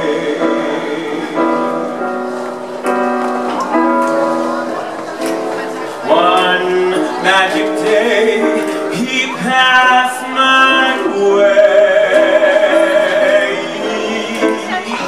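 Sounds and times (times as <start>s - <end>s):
man singing a slow ballad: 0.0s - 2.3s, 6.1s - 15.0s
piano accompaniment: 0.0s - 15.0s.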